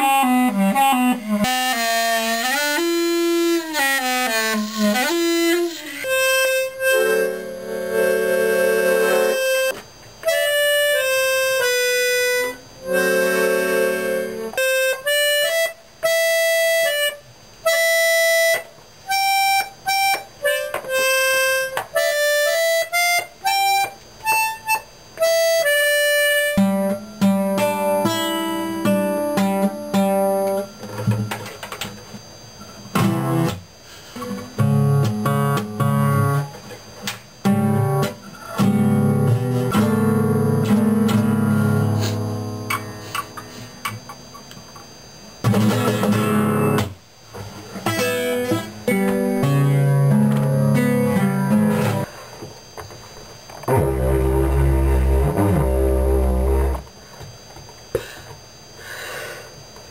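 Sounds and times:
accordion melody: 0.0s - 30.8s, 37.5s - 44.2s, 47.8s - 52.1s, 53.6s - 56.9s
acoustic guitar picked and strummed: 0.0s - 44.8s, 45.4s - 52.2s, 53.5s - 56.9s.

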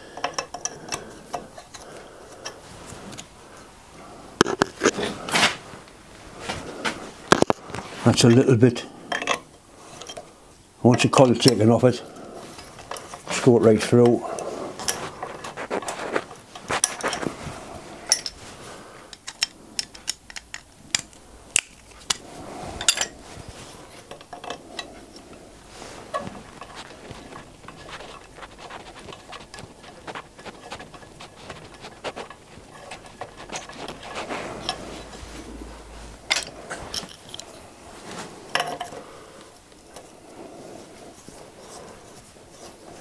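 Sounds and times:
small metallic clicks and clinks: 0.2s - 2.6s, 18.1s - 18.4s, 19.1s - 22.2s.

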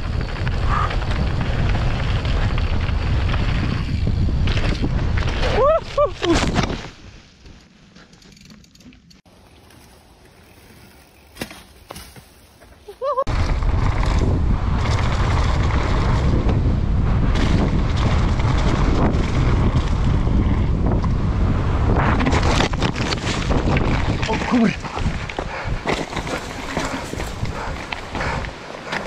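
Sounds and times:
wind rushing on microphone: 0.0s - 7.0s, 13.2s - 29.0s
bike rattling: 0.0s - 29.0s
tyres rumbling over dirt trail: 0.0s - 29.0s.

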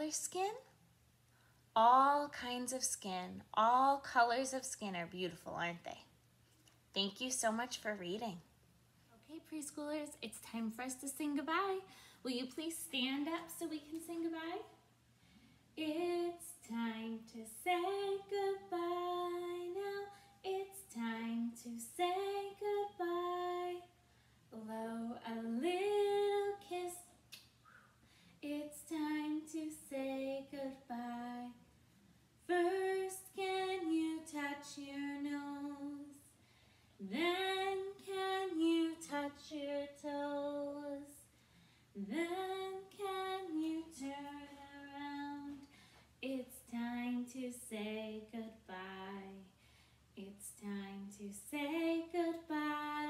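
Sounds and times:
woman singing unaccompanied: 9.2s - 14.8s, 15.8s - 24.0s, 24.6s - 27.1s, 28.4s - 31.6s, 32.5s - 36.3s, 37.0s - 41.2s, 42.0s - 49.5s, 50.2s - 53.0s.

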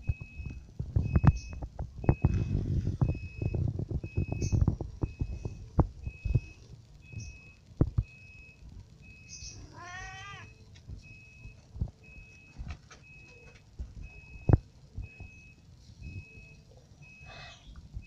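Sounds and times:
kitten meowing: 9.6s - 10.5s
faint high beep: 14.1s - 17.8s.

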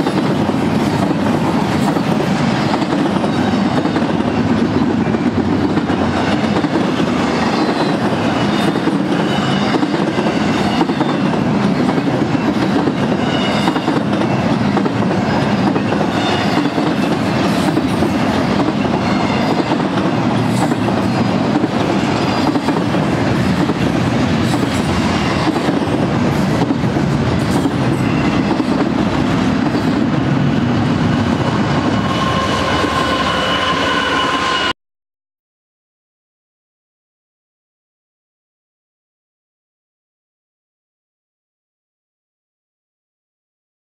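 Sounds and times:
freight train rumbling past: 0.0s - 34.8s.

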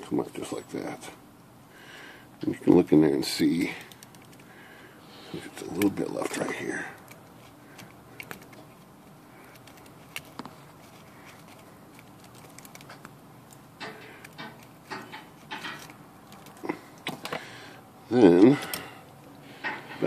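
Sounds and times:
pick clicking on plastic keys: 3.8s - 4.5s, 5.6s - 17.4s.

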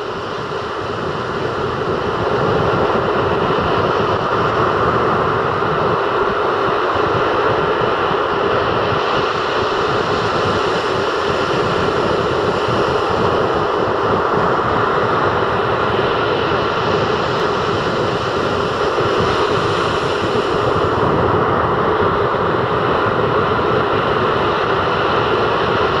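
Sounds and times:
surf breaking on beach: 8.9s - 22.2s.

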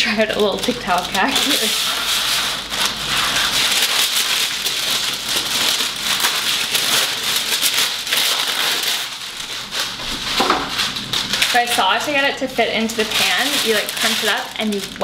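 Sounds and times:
paper rustling and tearing: 0.3s - 15.0s.

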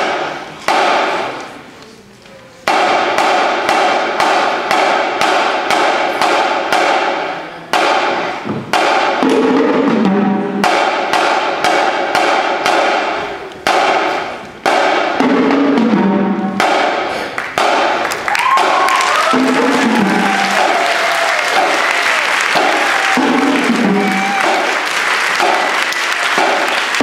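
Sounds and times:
marching drumline playing: 2.7s - 27.0s.

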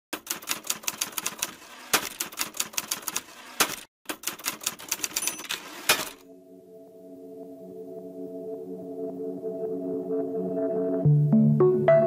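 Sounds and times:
typewriter keys striking: 0.2s - 6.2s
soft music with sustained tones: 6.2s - 12.0s.

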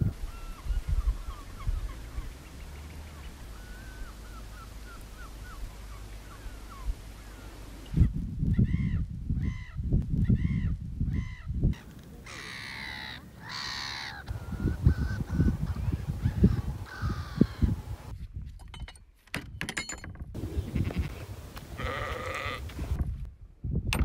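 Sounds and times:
birds chirping: 0.0s - 18.1s, 20.4s - 23.0s
wind rumbling on microphone: 0.0s - 24.0s
harsh bird calls: 0.2s - 18.1s.

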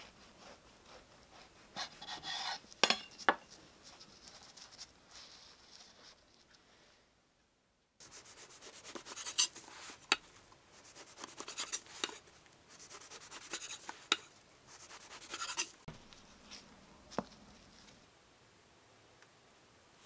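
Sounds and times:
knife sawing through bread crusts: 0.0s - 2.6s, 8.1s - 10.1s, 10.8s - 12.2s, 12.8s - 15.9s.

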